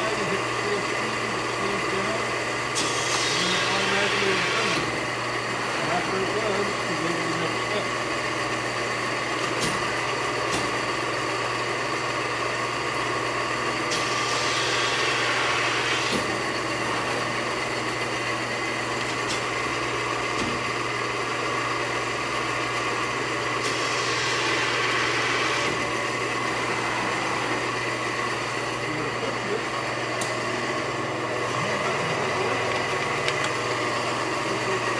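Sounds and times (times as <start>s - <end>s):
press motor humming: 0.0s - 34.9s
hiss: 2.8s - 4.2s, 13.9s - 16.2s, 23.7s - 25.4s.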